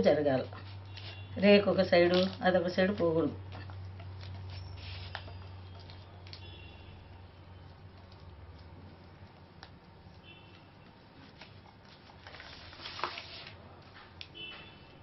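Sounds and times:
sharp plastic crackle: 2.0 - 2.5, 3.5 - 6.7, 11.2 - 13.6
plastic sheet crinkling: 2.0 - 2.8, 11.2 - 13.6
hands smoothing dough rustles: 10.8 - 13.6.

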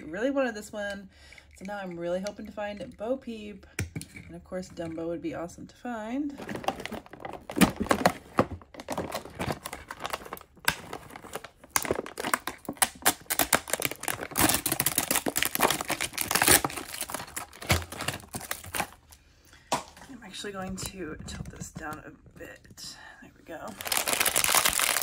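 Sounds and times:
foil bag crinkling and tearing: 6.4 - 19.2, 23.7 - 25.0.

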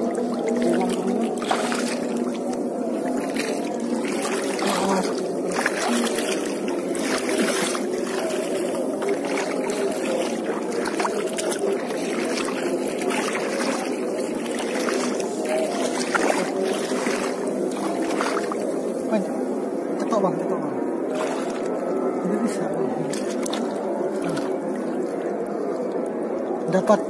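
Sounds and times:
water sloshing around wading legs: 0.0 - 27.0.

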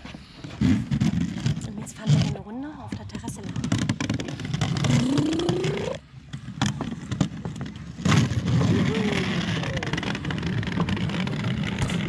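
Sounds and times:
plastic wheels rolling on wooden boards: 0.4 - 12.0.

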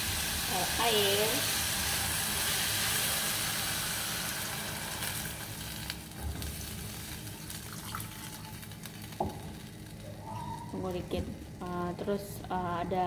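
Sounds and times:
meat sizzling in saucepan: 0.0 - 11.0
water pouring from jug: 7.7 - 8.5.

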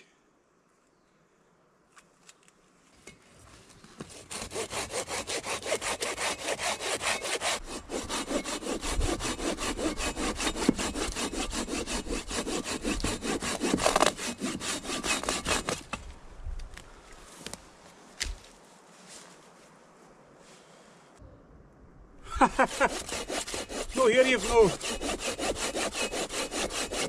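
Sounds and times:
pruning saw cutting through a log: 4.1 - 16.0, 22.6 - 27.0.

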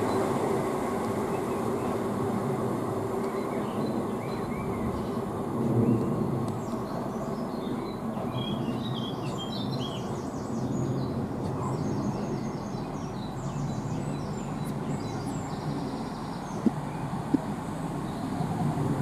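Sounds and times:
diesel train low rumble: 0.0 - 19.0
small bird singing: 3.2 - 18.4.

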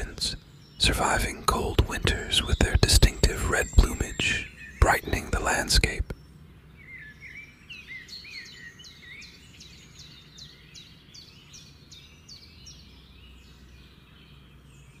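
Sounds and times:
faint low hum: 0.0 - 7.7
songbird chirping: 0.0 - 15.0.

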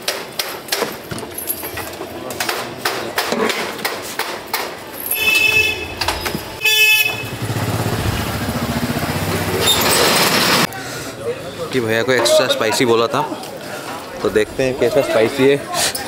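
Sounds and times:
vehicle horn honking: 5.1 - 7.7.

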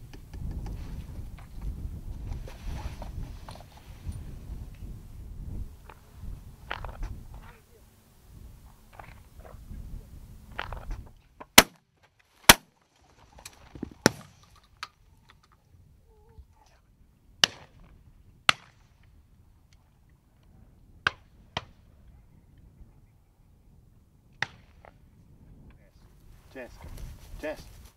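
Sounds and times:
gunshots: 14.0 - 14.4.

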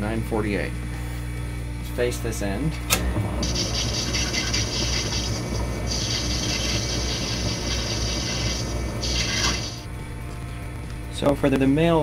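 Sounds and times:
lathe motor hum: 3.0 - 10.4
high hissy cutting noise: 3.4 - 9.9.

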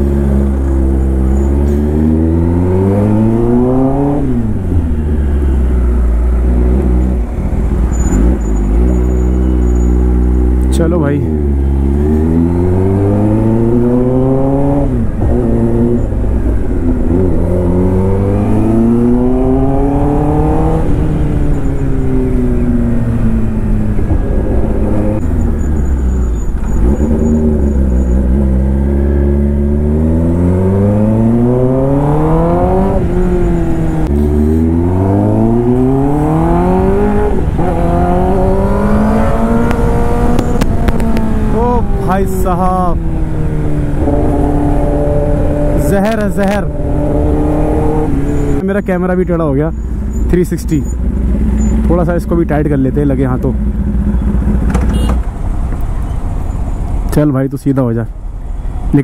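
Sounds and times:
motorcycle engine accelerating: 0.0 - 57.1.

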